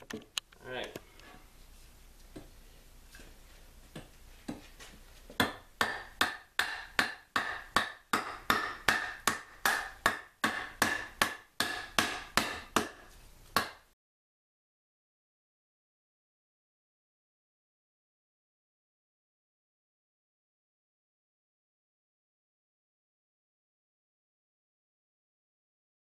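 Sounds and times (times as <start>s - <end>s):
hatchet chopping wood: 5.4s - 13.9s.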